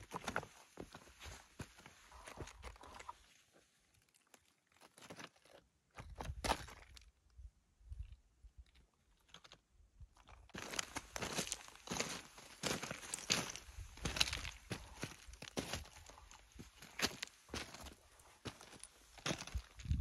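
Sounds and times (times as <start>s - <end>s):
boots crunching on loose rock: 0.0s - 3.1s, 10.5s - 20.0s.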